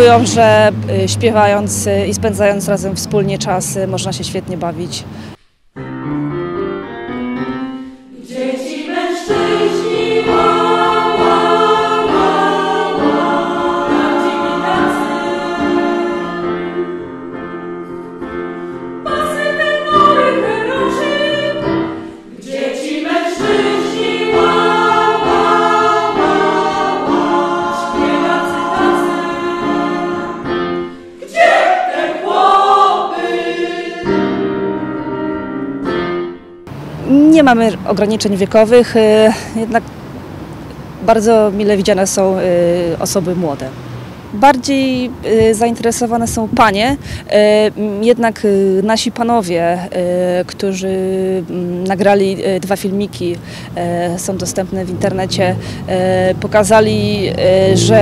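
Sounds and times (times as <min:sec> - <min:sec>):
women's choir singing: 0:08.1 - 0:17.8, 0:19.0 - 0:34.4.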